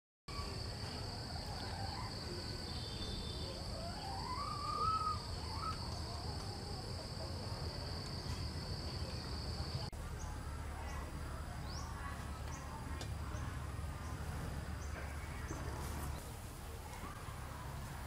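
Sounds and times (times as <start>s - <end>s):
insects droning: 0.3s - 18.0s
rising call: 1.2s - 5.9s.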